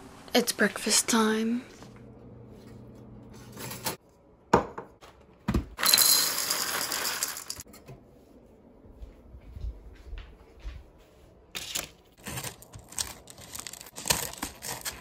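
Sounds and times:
cereal pouring into bowl: 5.8 - 7.6.

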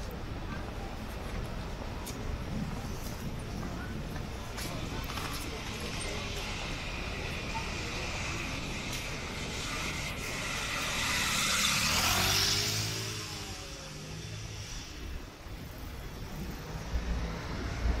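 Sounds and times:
vehicle passing by: 9.3 - 15.4.

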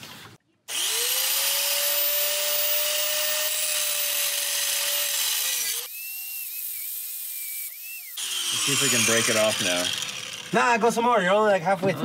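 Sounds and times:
angle grinder cutting metal: 0.7 - 11.0.

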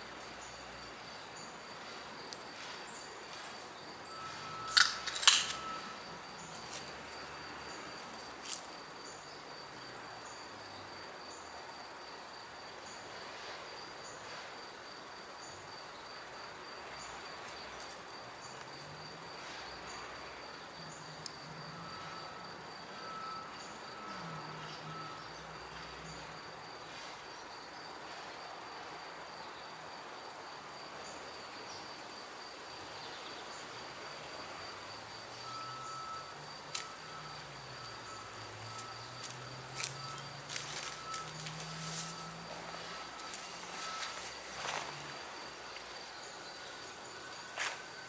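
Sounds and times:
high-pitched insect trill: 0.2 - 13.1, 13.7 - 48.0.

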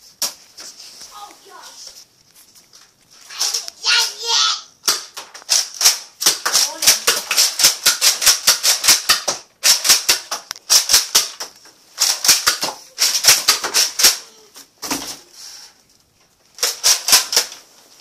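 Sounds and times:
toy dart blaster clacking: 3.4 - 14.3, 16.6 - 17.6.

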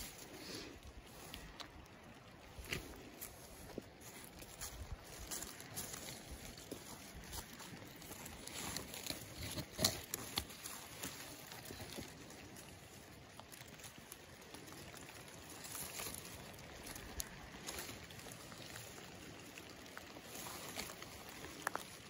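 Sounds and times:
leaves rustling and crackling: 0.0 - 22.0.

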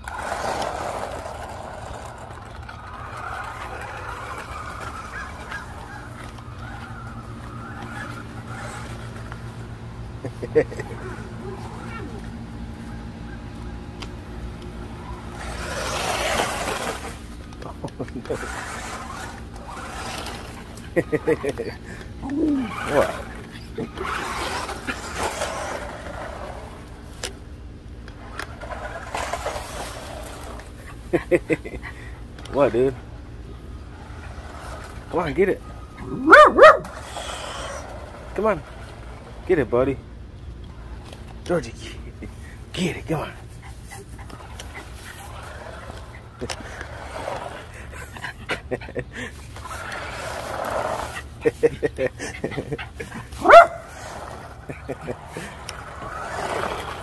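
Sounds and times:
electric motor whining: 0.0 - 27.3, 32.3 - 39.6.

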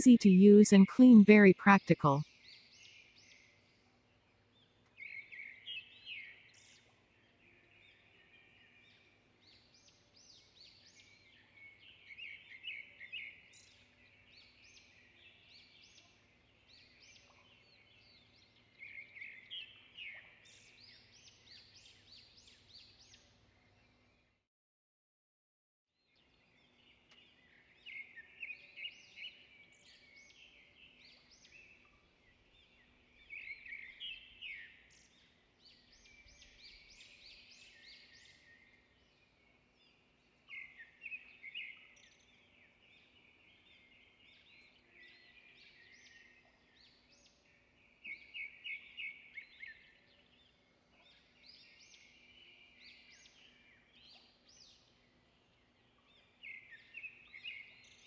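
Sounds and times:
birds chirping: 0.0 - 2.2.

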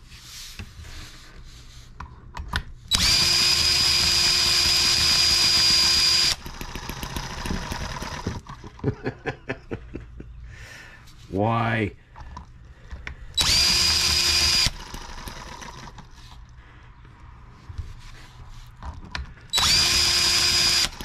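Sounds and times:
cordless drill whining: 2.9 - 8.4, 13.4 - 16.3, 19.5 - 21.0.

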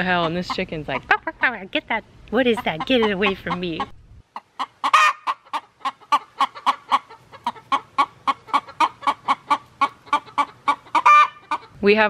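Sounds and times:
hen clucking in alarm: 0.0 - 12.0
hen squawking: 2.4 - 11.9.

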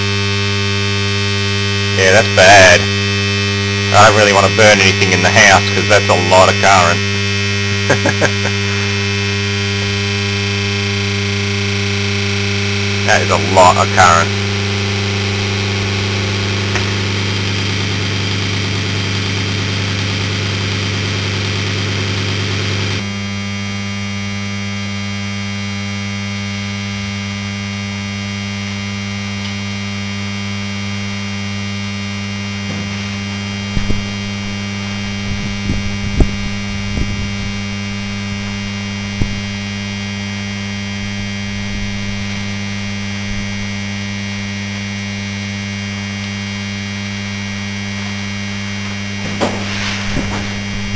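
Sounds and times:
compressor motor humming loudly: 0.0 - 50.9.

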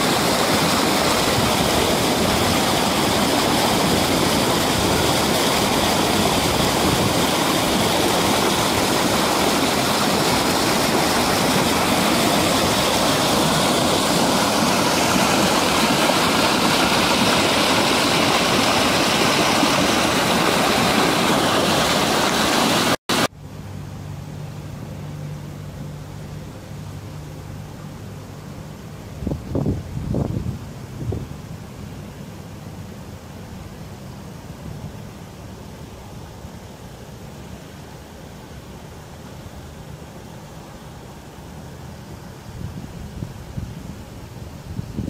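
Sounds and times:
floodwater rushing: 0.0 - 23.3
low steady hum: 23.2 - 45.0.

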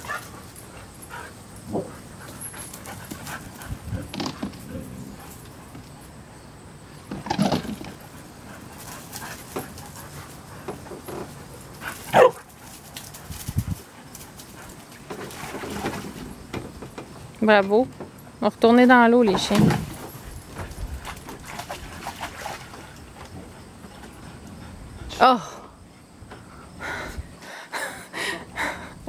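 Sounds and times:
dogs barking: 12.1 - 12.4.

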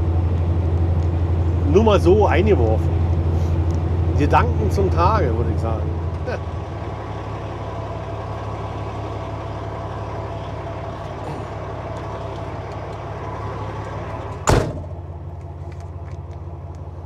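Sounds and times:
truck engine drone: 0.0 - 17.0
road hiss: 2.9 - 5.0
loud thump: 14.4 - 15.0.

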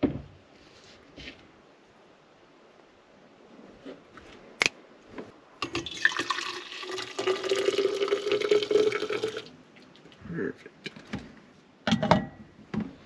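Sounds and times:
coffee pouring into mug: 5.6 - 10.0.

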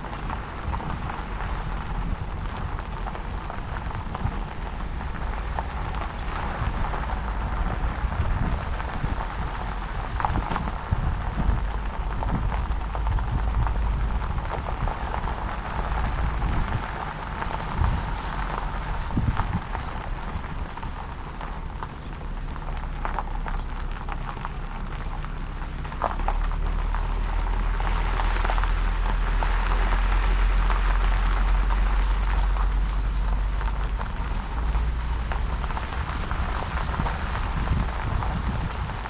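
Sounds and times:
road or rain hiss: 0.0 - 39.0
vehicle low rumble: 0.0 - 39.0.

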